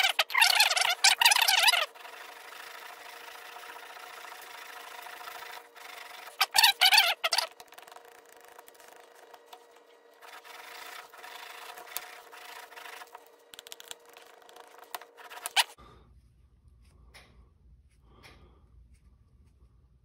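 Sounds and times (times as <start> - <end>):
blade rubbing on a strop: 0.0 - 15.8.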